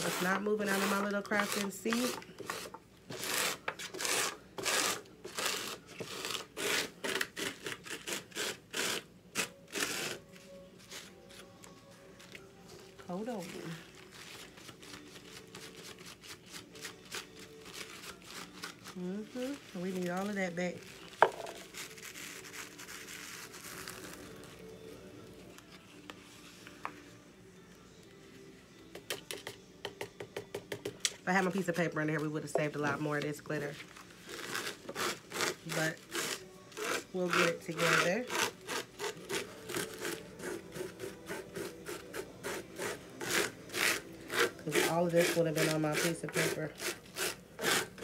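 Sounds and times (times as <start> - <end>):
paper scraping on plastic bag: 0.0 - 9.0, 13.2 - 24.7.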